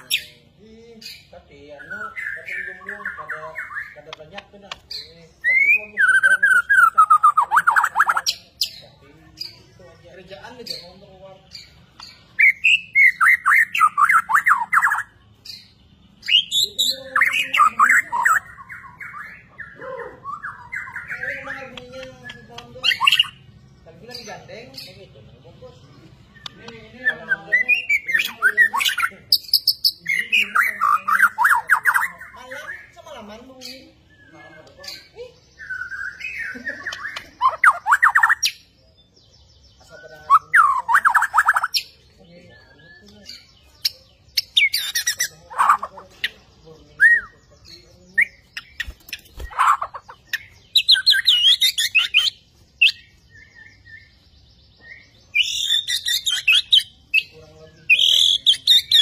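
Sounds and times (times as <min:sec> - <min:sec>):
bird singing whistled notes: 0:05.4 - 0:08.8, 0:47.0 - 0:59.0.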